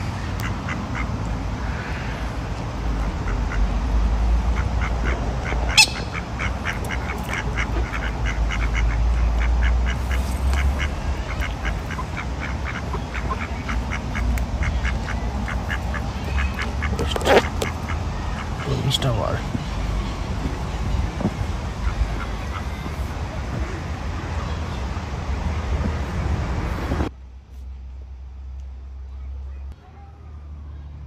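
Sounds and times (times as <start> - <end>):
steady low rumble: 0.0 - 29.8
ducks quacking: 3.0 - 23.3.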